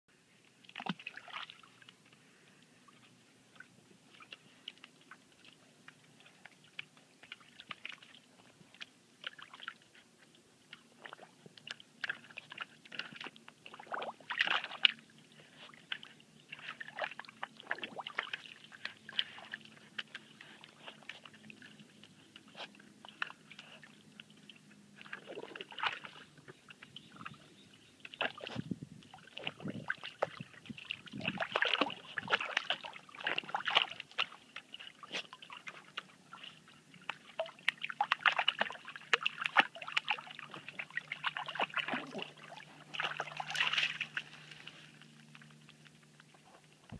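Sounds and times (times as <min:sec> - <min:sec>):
dog splashing in water: 0:00.7 - 0:01.9, 0:11.0 - 0:15.0, 0:15.8 - 0:21.4, 0:25.0 - 0:26.3, 0:28.1 - 0:44.6.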